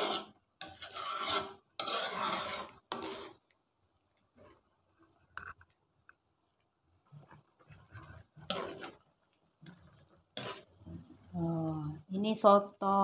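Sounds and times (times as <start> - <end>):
spoon scraping in a metal wok: 0.0 - 3.6, 7.2 - 11.4.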